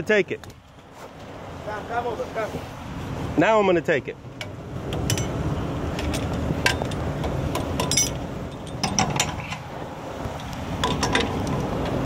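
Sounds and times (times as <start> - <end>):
low steady rumble: 4.1 - 12.0
metal clicks and clanks: 4.4 - 9.7, 10.4 - 12.0.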